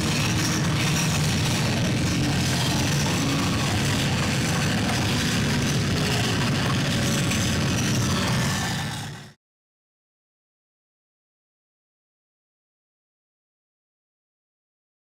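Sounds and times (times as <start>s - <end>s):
steady low drone: 0.0s - 9.4s.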